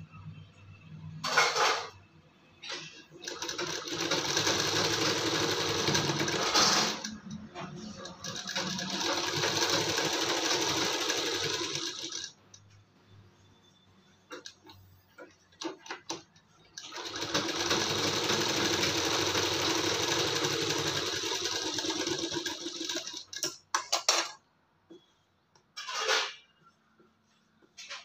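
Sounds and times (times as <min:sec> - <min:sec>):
sewing machine stitching: 0:02.6 - 0:12.4, 0:15.6 - 0:23.9.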